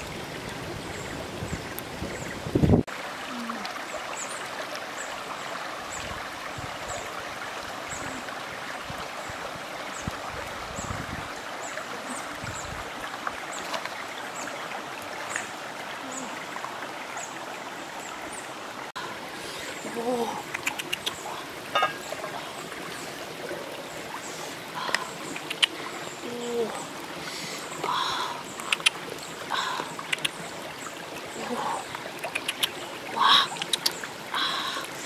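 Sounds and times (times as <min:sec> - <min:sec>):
stream water rushing and trickling: 0:00.0 - 0:35.0.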